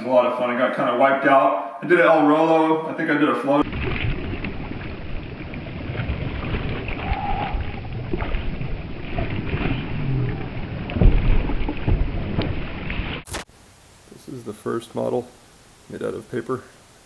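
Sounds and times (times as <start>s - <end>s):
water sloshing against kayak hull: 3.6s - 13.3s
heavy low thump: 10.4s - 12.8s.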